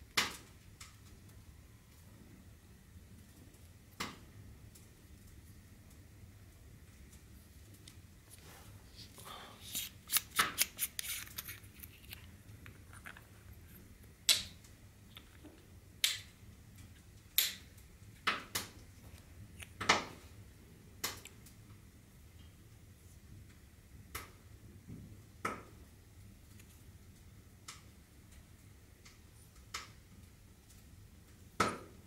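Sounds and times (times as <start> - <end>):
metal flashlight parts clicking: 9.7 - 13.7.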